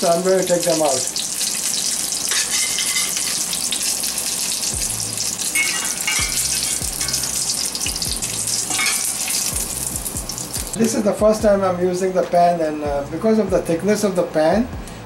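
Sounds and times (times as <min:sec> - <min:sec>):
cutlets sizzling in hot oil: 0:00.0 - 0:11.1.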